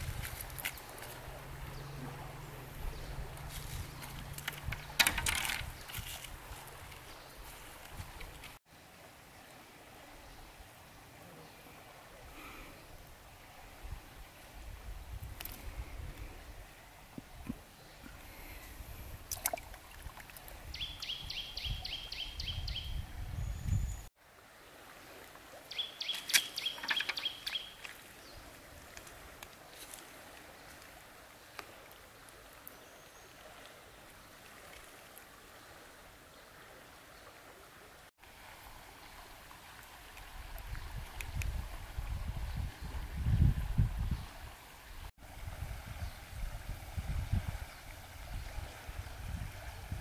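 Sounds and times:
bird trilling: 0:25.7 - 0:27.8.

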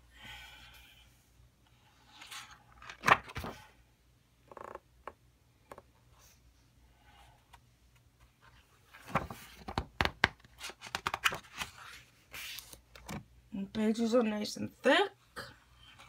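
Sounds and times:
paper pages rustling: 0:02.1 - 0:03.6, 0:08.3 - 0:13.2
page slapping: 0:02.8 - 0:03.6, 0:09.0 - 0:13.2.

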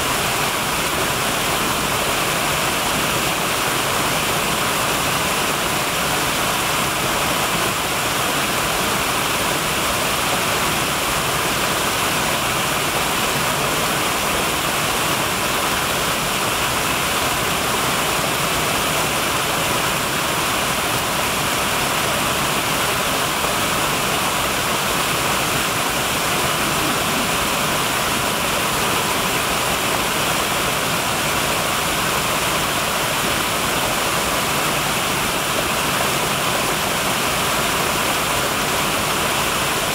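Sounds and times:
waterfall splashing over rocks: 0:00.0 - 0:39.9.

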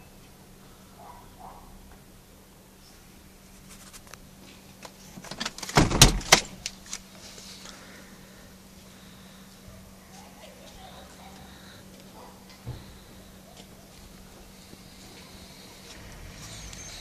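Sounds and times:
faint steady hum: 0:00.0 - 0:17.0
phone handling rattles and clicks: 0:04.8 - 0:07.1.

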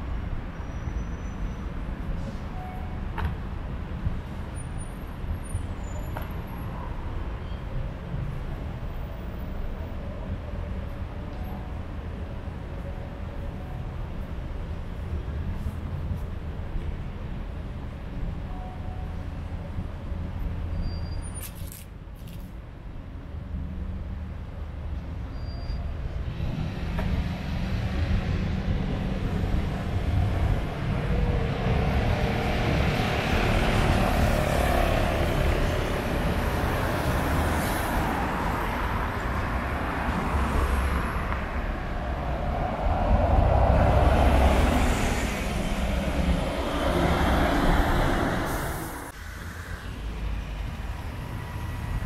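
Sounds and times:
cars passing: 0:26.0 - 0:52.0.

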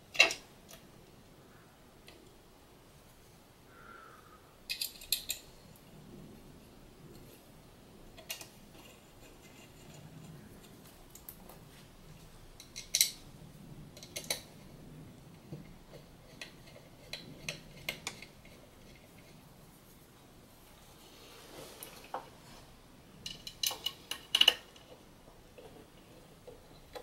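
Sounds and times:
metallic clicks of tool and screws: 0:04.7 - 0:05.5, 0:12.6 - 0:13.2, 0:23.2 - 0:25.0.

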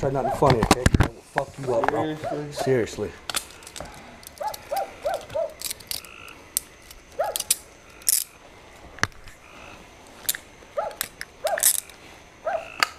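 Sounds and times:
handcuffs ratcheting clicks: 0:03.3 - 0:08.4, 0:10.2 - 0:12.0.

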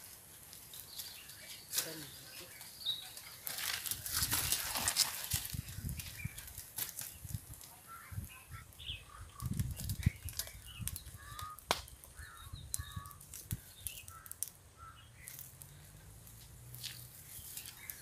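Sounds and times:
twig fire snapping: 0:00.0 - 0:18.0
bird chirps: 0:00.9 - 0:03.4, 0:07.9 - 0:11.6, 0:12.2 - 0:15.9.

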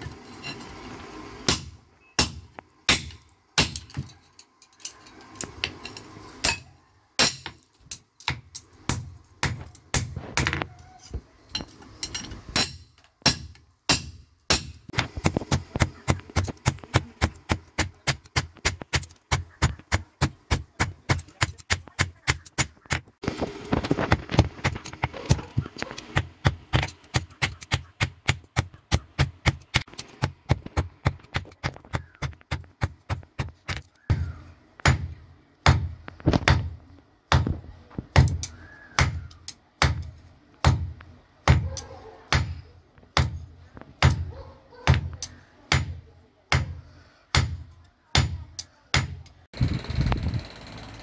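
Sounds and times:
hammer striking hot steel on anvil: 0:01.4 - 0:04.2, 0:05.5 - 0:10.6, 0:11.5 - 0:23.0, 0:38.2 - 0:41.6, 0:42.3 - 0:44.3, 0:44.9 - 0:49.3.

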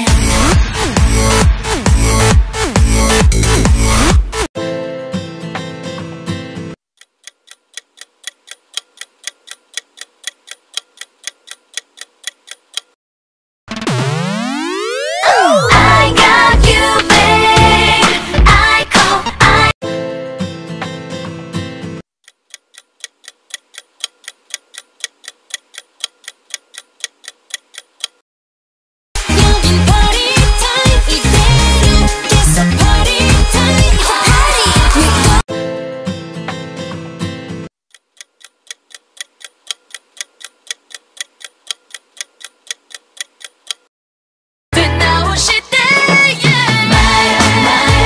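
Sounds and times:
electronic dance-pop music: 0:00.0 - 0:04.5, 0:13.7 - 0:19.7, 0:29.2 - 0:35.4, 0:44.8 - 0:48.0
ticking clock: 0:07.0 - 0:13.0, 0:22.2 - 0:28.2, 0:37.9 - 0:43.9.

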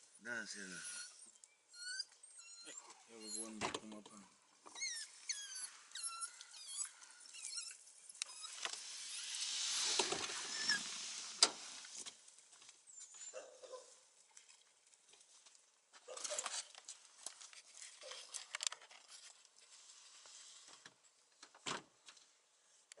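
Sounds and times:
light clicks and rustles: 0:14.2 - 0:22.3.

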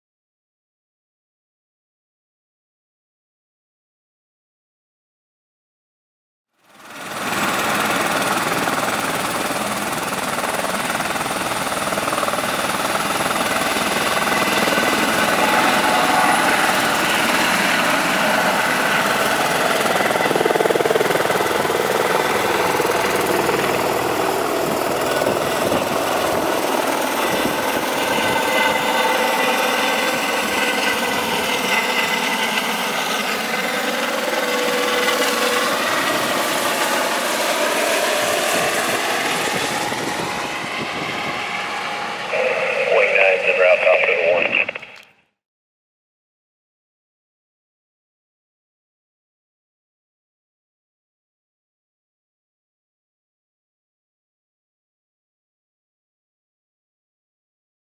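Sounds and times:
helicopter turbine and rotor: 0:06.6 - 0:45.0.

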